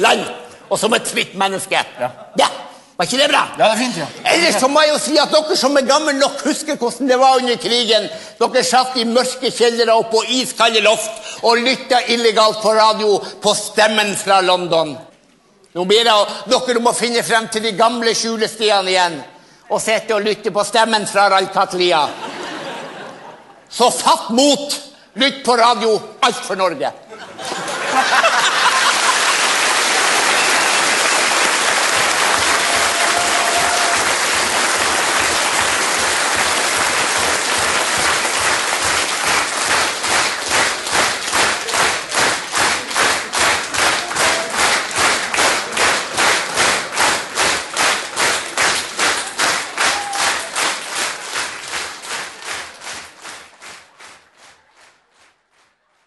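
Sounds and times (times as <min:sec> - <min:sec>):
audience applause: 0:27.5 - 0:55.8
clapping in unison: 0:28.3 - 0:56.0.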